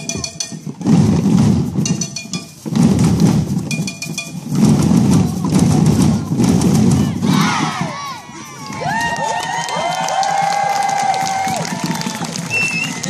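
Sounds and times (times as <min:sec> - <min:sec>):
children drumming on plastic buckets: 0:00.0 - 0:13.0.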